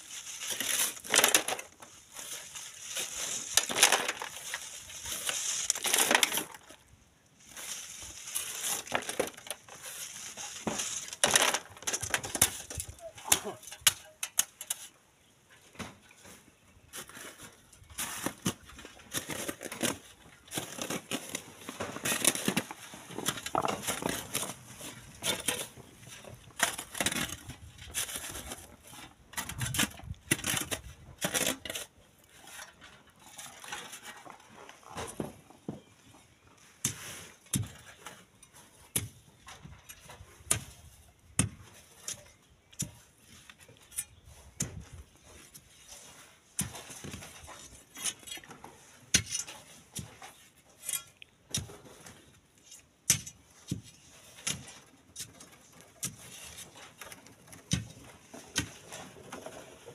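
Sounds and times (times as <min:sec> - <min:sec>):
tool scraping sand and gravel: 0:00.0 - 0:06.8, 0:07.4 - 0:12.5
stones clattering: 0:00.4 - 0:06.9, 0:19.1 - 0:25.7.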